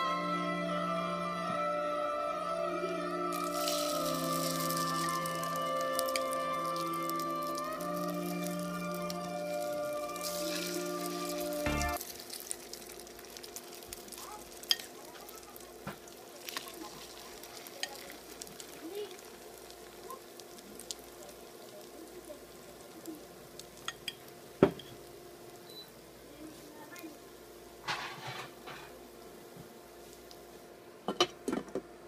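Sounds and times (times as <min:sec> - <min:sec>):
background music: 0:00.0 - 0:12.0
omelette sizzling in oil: 0:03.3 - 0:31.4.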